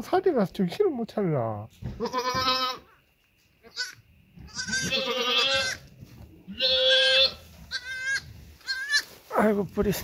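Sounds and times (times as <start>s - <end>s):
goat kids bleating: 1.9s - 3.0s, 3.6s - 9.3s.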